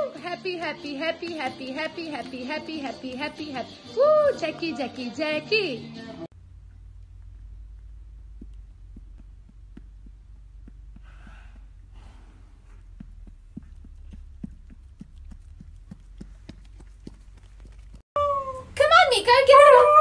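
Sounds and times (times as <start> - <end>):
low hum: 6.2 - 18.8
small irregular clicks: 6.7 - 11.8
horse exhaling through nostrils: 11.0 - 13.0.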